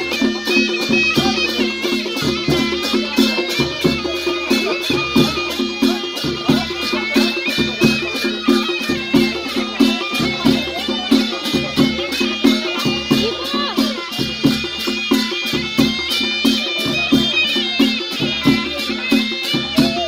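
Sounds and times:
fast steady percussion beat: 0:00.0 - 0:20.0
reedy wind instrument melody: 0:00.0 - 0:20.0.

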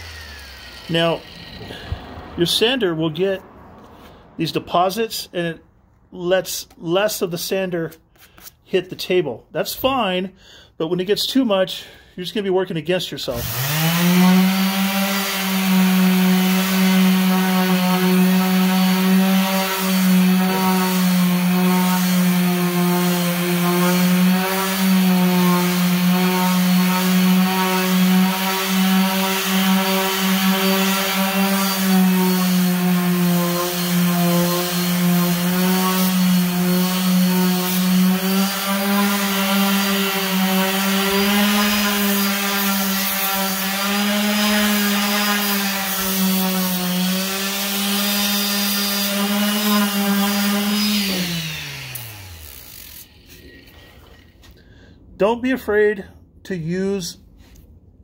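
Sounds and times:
orbital sander sanding wood: 0:00.0 - 0:05.0, 0:13.3 - 0:54.4.

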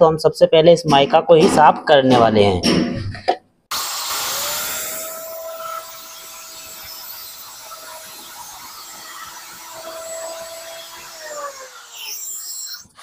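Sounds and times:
circular saw motor whine: 0:03.7 - 0:13.0
saw blade scraping laminate: 0:03.8 - 0:13.0.

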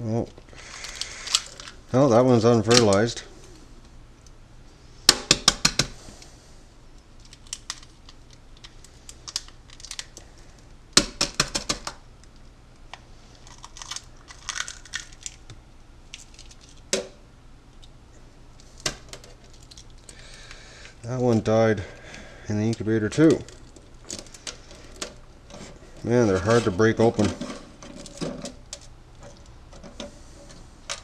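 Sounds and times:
egg shells cracking: 0:00.5 - 0:01.8, 0:07.0 - 0:17.1, 0:17.7 - 0:30.0
shell crackling being pulled apart: 0:00.6 - 0:01.8, 0:07.1 - 0:10.6, 0:11.8 - 0:17.0.

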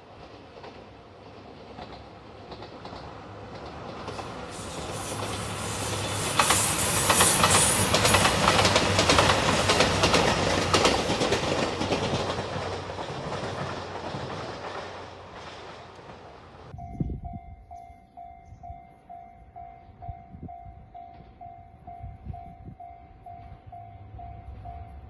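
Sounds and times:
diesel train engine hum: 0:00.0 - 0:25.0
wheels clacking over rail joints: 0:00.1 - 0:16.8.

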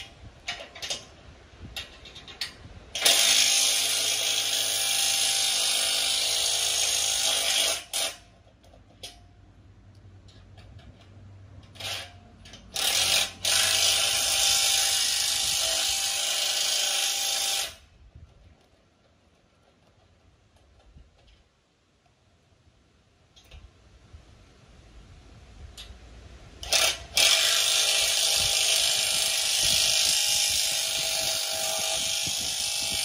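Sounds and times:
metallic clicks and knocks: 0:00.0 - 0:02.7, 0:08.0 - 0:09.3, 0:09.9 - 0:13.4
power tool running: 0:03.0 - 0:08.2, 0:11.8 - 0:17.9, 0:26.6 - 0:33.0.

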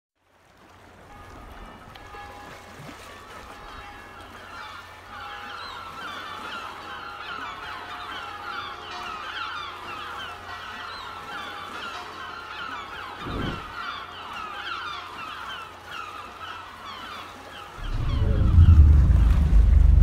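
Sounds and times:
flock of birds calling: 0:03.8 - 0:19.6.

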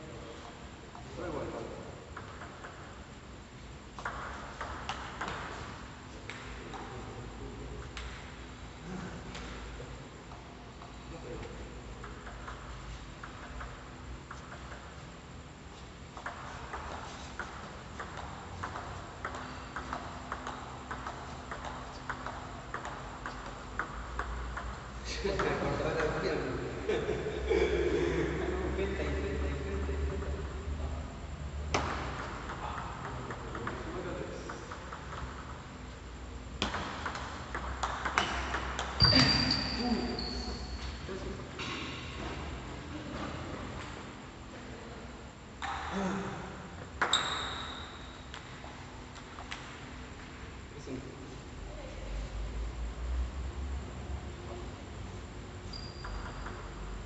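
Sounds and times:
ping pong ball clicking off paddles: 0:02.0 - 0:03.3, 0:03.9 - 0:07.1, 0:10.2 - 0:15.2, 0:16.0 - 0:26.2, 0:31.7 - 0:39.8, 0:47.0 - 0:49.8
table tennis ball clicking: 0:36.6 - 0:39.0
shoe squeak: 0:39.0 - 0:40.9, 0:47.1 - 0:48.2, 0:55.6 - 0:56.5.

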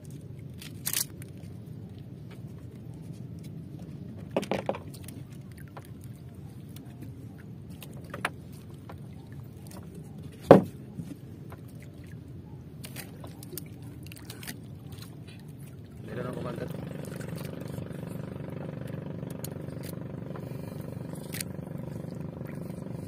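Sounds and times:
water washing against boat: 0:01.5 - 0:23.0
wooden boat knocks: 0:04.3 - 0:04.9, 0:10.4 - 0:11.6.

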